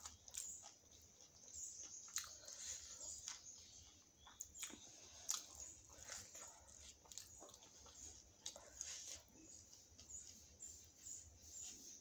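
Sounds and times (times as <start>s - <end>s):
person chewing wet smacks: 0.0s - 9.0s.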